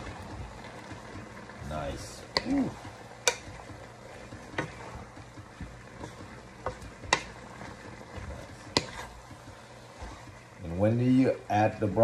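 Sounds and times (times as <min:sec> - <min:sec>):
noodles sizzling: 0:00.0 - 0:12.0
spatula scraping wok: 0:00.0 - 0:12.0
spatula knocking pan: 0:02.2 - 0:11.2.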